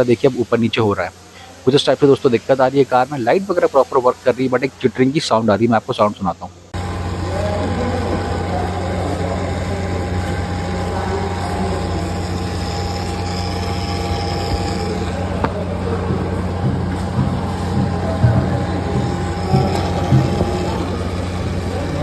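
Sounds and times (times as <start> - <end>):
headlight unit chattering: 0.0 - 22.0
car engine idling: 6.4 - 22.0.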